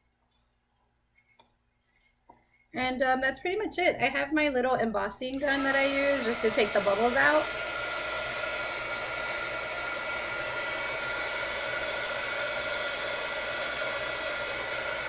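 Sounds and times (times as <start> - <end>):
heat gun blowing air: 5.4 - 15.0.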